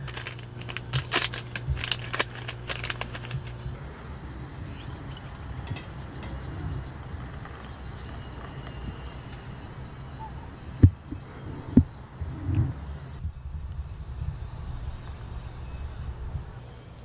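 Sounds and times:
paper wrapper crinkling and tearing: 0.0 - 3.8
low steady hum: 0.0 - 17.0
hot water pouring into a mug: 6.8 - 9.1.

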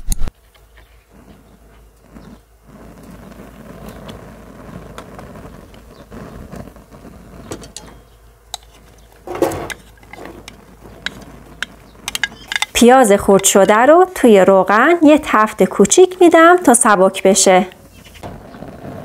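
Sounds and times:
onion clattering into pan: 7.4 - 14.2
small clicks and handling sounds: 7.6 - 12.8.

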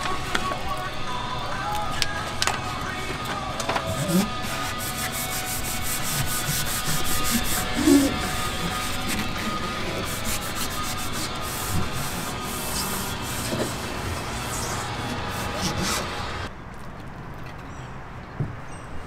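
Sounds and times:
bump: 0.0 - 16.5
hands rubbing foam pad: 3.8 - 16.4.

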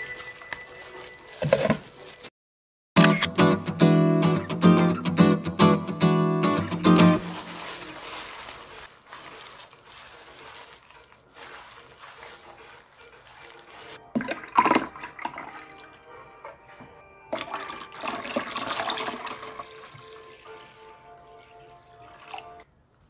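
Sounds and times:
water pouring: 13.9 - 16.0, 17.3 - 22.6
juice running into bowl: 14.1 - 15.8, 17.3 - 22.6.

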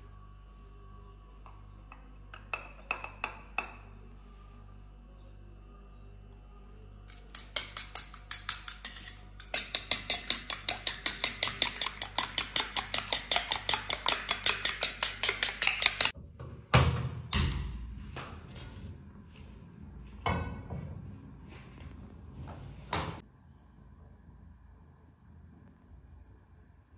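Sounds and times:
spoon beating eggs in metal bowl: 1.4 - 3.9, 7.1 - 16.2.

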